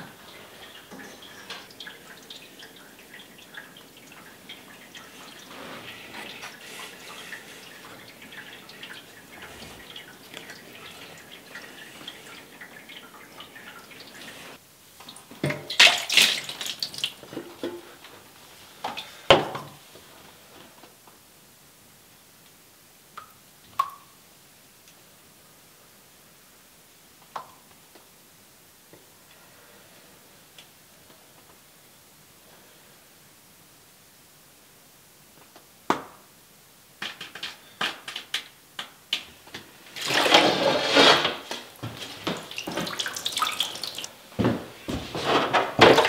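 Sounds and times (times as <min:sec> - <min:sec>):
water splashing in a tray: 0:15.5 - 0:17.2, 0:40.0 - 0:44.1.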